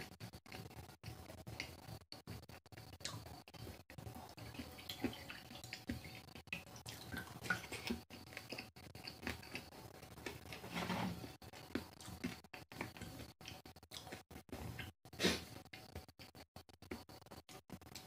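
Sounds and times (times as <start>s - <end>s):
water dripping and splashing into bowl: 4.4s - 8.0s.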